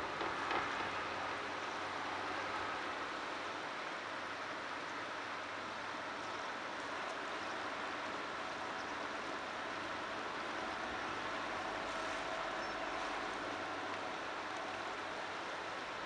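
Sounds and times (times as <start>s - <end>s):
river rushing: 0.0s - 16.0s.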